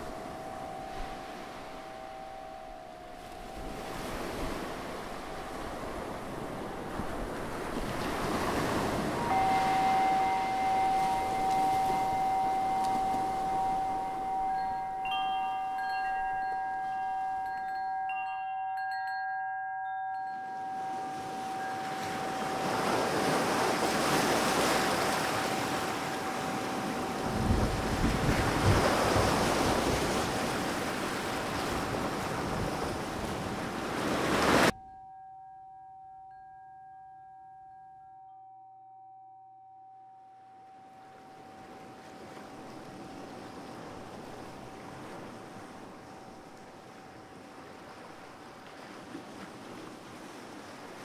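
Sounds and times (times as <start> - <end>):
chime-like bell notes: 0.0 - 6.5, 8.8 - 29.5, 34.7 - 46.4
steady held tone: 0.0 - 6.6, 8.9 - 19.0, 34.7 - 43.9.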